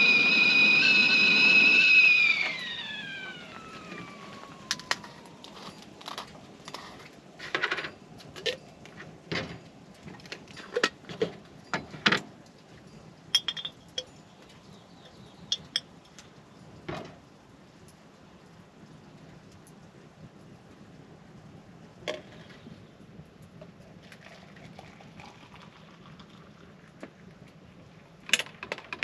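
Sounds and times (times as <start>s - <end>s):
glass jar and spoon clinking: 13.3s - 14.3s, 15.5s - 15.9s.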